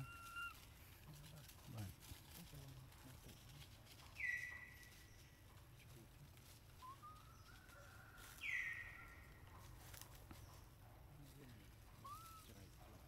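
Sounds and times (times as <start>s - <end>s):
high thin animal calls: 0.0s - 0.8s, 12.0s - 12.6s.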